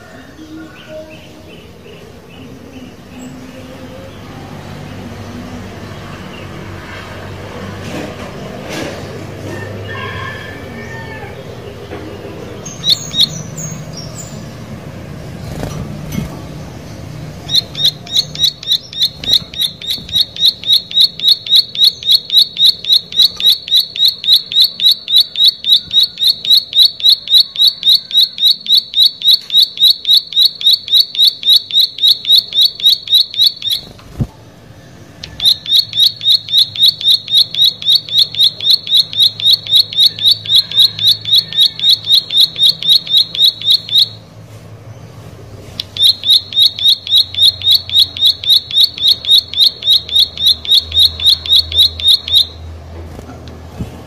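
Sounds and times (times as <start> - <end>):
bird singing rapid high notes: 12.6 - 14.4, 17.2 - 34.0, 35.2 - 44.2, 45.8 - 52.6.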